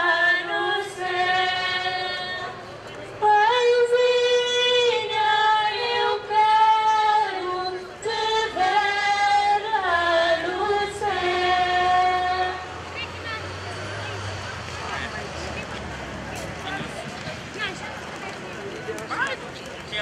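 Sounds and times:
women singing a slow hymn: 0.0 - 12.8.

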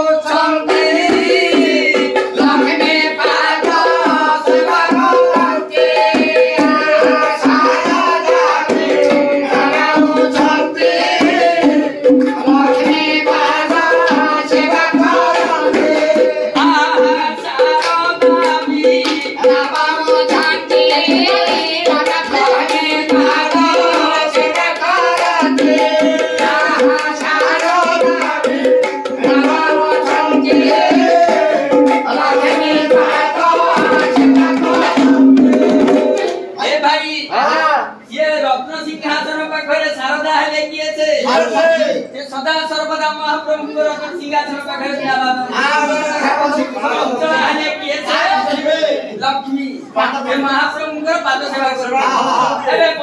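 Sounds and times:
hand drums beating fast rhythm: 0.0 - 36.6
voices singing a devotional chant: 0.0 - 53.0.

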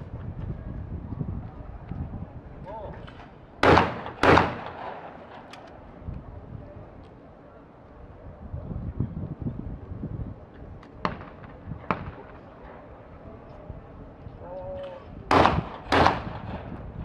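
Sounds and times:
light sharp cracks: 3.0 - 5.8
shotgun shots: 3.6 - 5.5, 11.0 - 12.4, 15.3 - 16.7.

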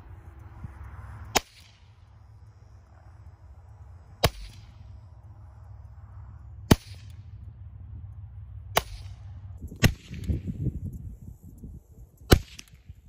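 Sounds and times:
suppressed pistol shots: 4.2 - 4.7, 8.8 - 9.2, 9.8 - 10.4, 12.3 - 12.8.

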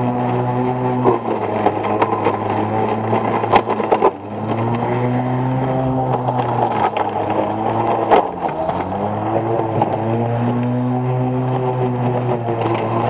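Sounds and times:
electric lawn mower humming: 0.0 - 13.0.

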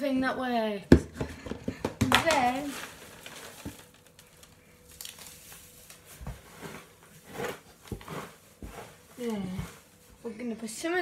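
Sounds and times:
hands stirring wood shavings: 2.2 - 11.0.

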